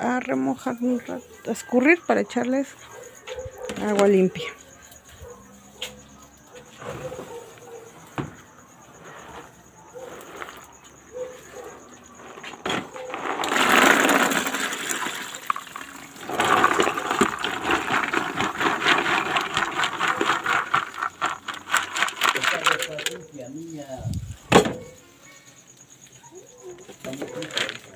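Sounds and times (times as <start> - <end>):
water pouring from a bowl: 13.3 - 22.8.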